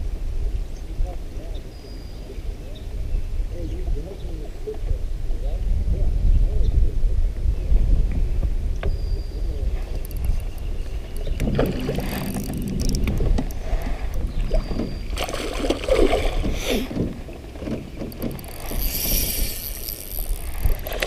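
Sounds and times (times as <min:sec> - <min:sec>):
wind on microphone: 0:00.0 - 0:21.0
spinning reel cranking: 0:11.8 - 0:13.2, 0:18.1 - 0:21.0
fish splashing at surface: 0:14.6 - 0:16.9.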